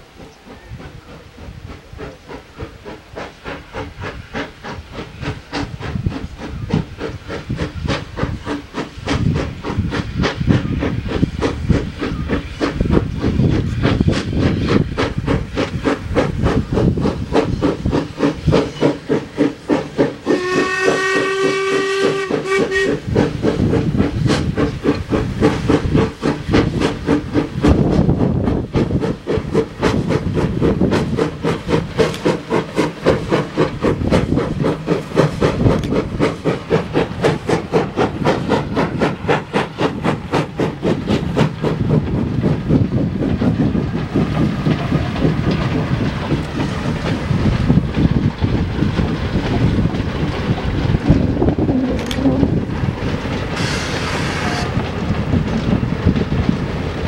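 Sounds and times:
steam locomotive chuffing: 0.0 - 57.0
steam whistle: 20.2 - 23.0, 53.6 - 54.7.

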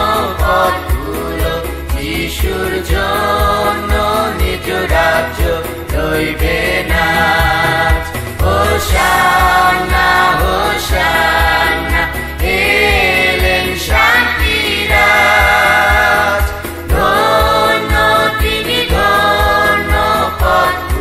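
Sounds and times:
group singing a hymn: 0.0 - 21.0
low thumps: 5.0 - 19.6.

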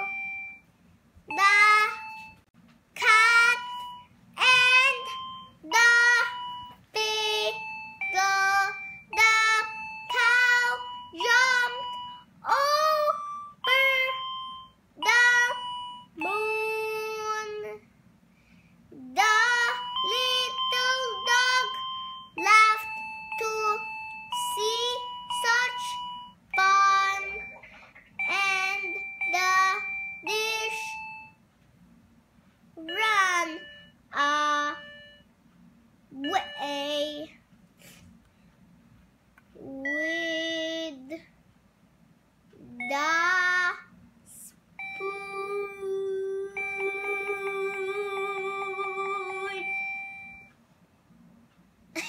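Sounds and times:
toy piano electronic tones: 0.0 - 0.6, 1.3 - 2.4, 3.0 - 17.7, 19.2 - 31.4, 32.8 - 35.2, 36.2 - 37.3, 42.6 - 43.8, 44.8 - 50.5
girl singing: 1.3 - 2.3, 3.0 - 14.4, 15.0 - 17.8, 18.9 - 27.5, 28.2 - 31.0, 32.8 - 34.9, 36.2 - 37.3, 39.6 - 41.2, 42.6 - 50.0
girl singing held notes: 42.6 - 49.8.

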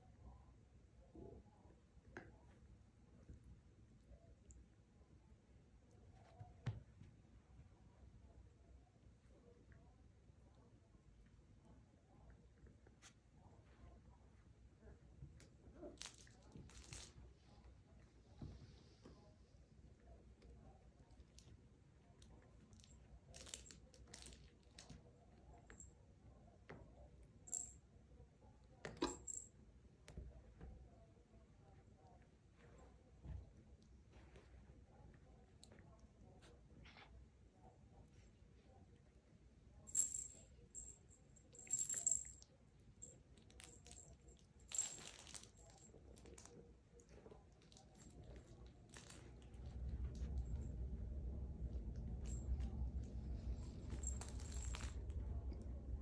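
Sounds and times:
low rumble: 49.3 - 56.0.

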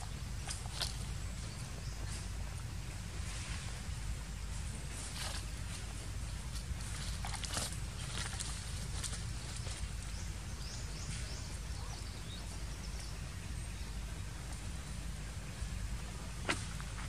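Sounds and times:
faint rustles and clicks: 0.0 - 17.0
low outdoor rumble: 0.0 - 17.0
bird chirping: 4.5 - 17.0.

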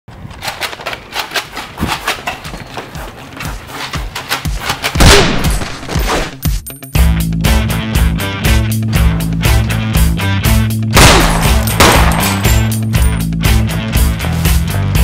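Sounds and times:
rapid gunfire: 11.0 - 12.2.

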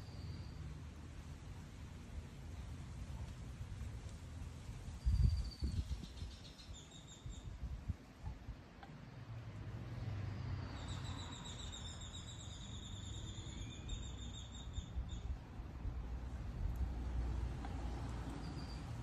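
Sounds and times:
wind buffeting microphone: 3.6 - 8.6.

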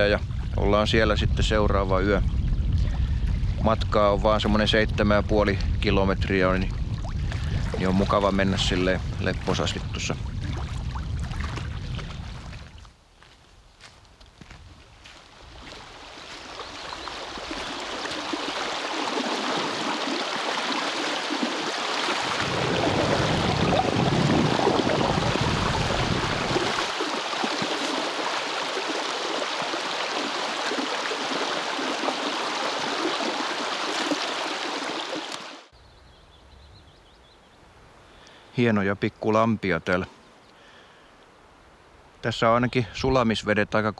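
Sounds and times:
rushing stream water: 6.6 - 12.9, 14.4 - 35.7.

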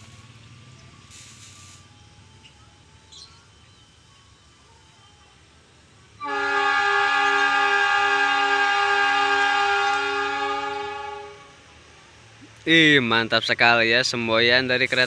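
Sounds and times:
trackside background noise: 0.0 - 15.0
locomotive air horn blast: 6.2 - 11.9.

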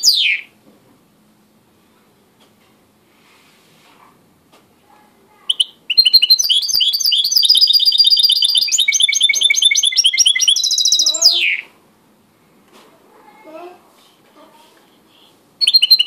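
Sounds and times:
finch singing trilled chirps: 5.5 - 11.7, 15.6 - 16.0.

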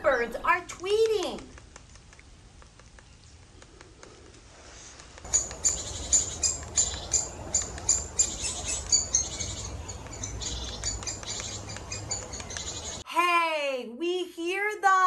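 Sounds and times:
woodpeckers calling: 5.0 - 13.0.

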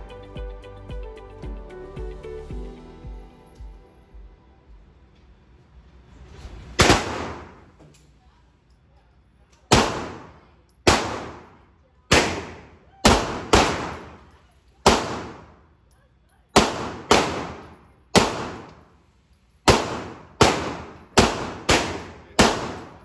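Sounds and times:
pistol shots echoing: 6.8 - 7.7, 9.7 - 15.7, 16.5 - 18.9, 19.6 - 23.0.

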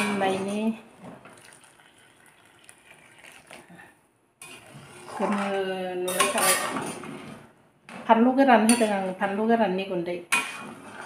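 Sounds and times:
water pouring: 1.0 - 3.8
metal ladle scraping pan: 4.4 - 7.5, 10.3 - 11.0.

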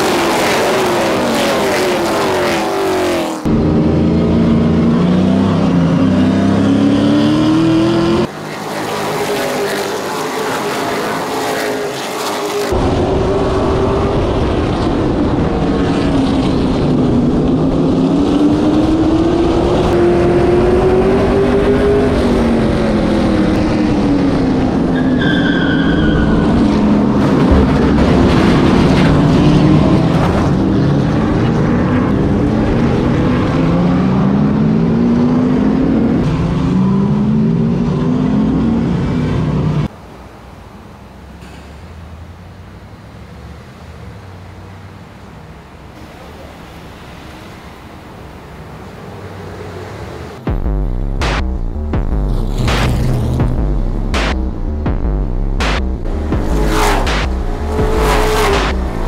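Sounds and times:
race car engines: 0.0 - 59.0
tire squeal: 24.8 - 27.2.

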